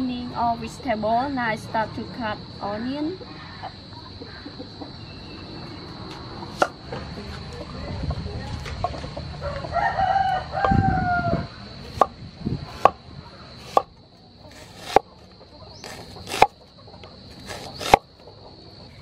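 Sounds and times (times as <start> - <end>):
cleaver chopping onion on wooden board: 6.5 - 6.8, 11.9 - 12.1, 12.7 - 13.0, 13.6 - 13.9, 14.5 - 15.1, 15.8 - 16.6, 17.3 - 18.1
rooster crowing: 9.3 - 11.7.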